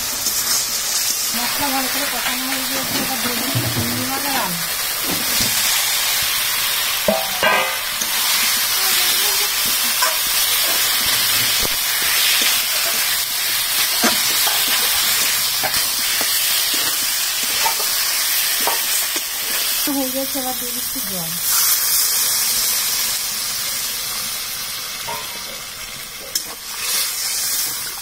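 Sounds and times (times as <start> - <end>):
frying sizzle: 0.0 - 28.0
potatoes clattering into pan: 7.0 - 8.2
metal spatula scraping pan: 9.8 - 19.7.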